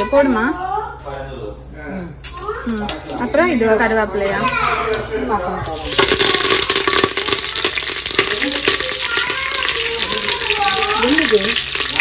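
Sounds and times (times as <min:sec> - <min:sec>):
seeds sizzling in hot oil: 0:02.2 - 0:03.4, 0:05.6 - 0:12.0.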